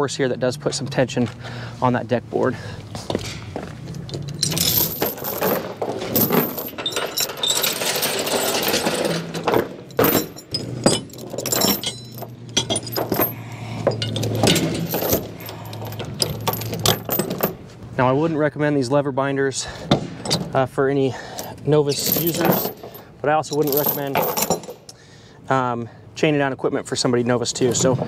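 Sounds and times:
chain dragged across wooden deck: 0:03.8 - 0:17.7, 0:21.4 - 0:24.8
chain rattling and clinking: 0:03.8 - 0:17.7, 0:21.3 - 0:25.0.

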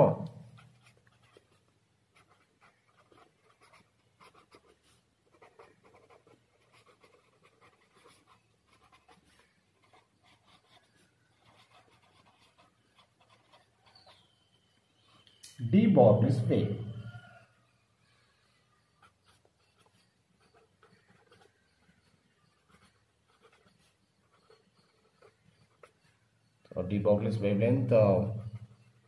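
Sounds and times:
pen scratching on paper: 0:00.6 - 0:15.2, 0:19.0 - 0:26.2, 0:28.1 - 0:29.0.

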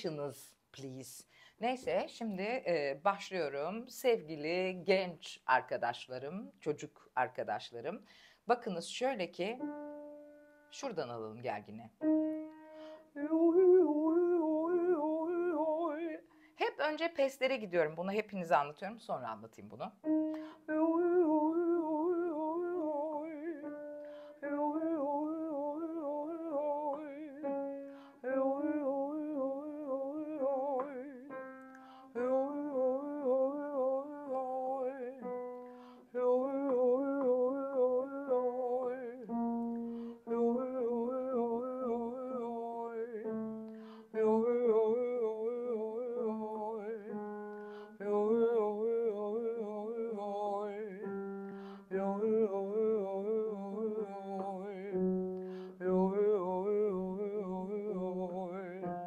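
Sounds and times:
piano notes: 0:09.6 - 0:11.2, 0:12.0 - 0:16.2, 0:20.0 - 0:59.0
woman singing vocal exercise: 0:13.0 - 0:27.5, 0:28.1 - 0:31.4, 0:32.1 - 0:35.3, 0:36.0 - 0:39.3, 0:40.3 - 0:43.3, 0:44.1 - 0:47.2.

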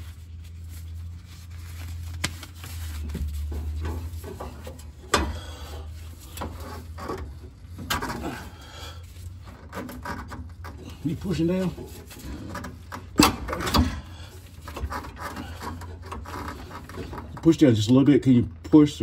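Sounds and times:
metal knocks and rubbing: 0:03.0 - 0:05.4, 0:06.2 - 0:08.4, 0:09.4 - 0:17.5.

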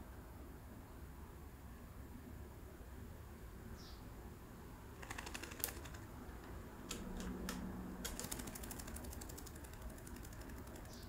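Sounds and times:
fingers scratching feathers: 0:05.0 - 0:06.1, 0:06.9 - 0:11.0.

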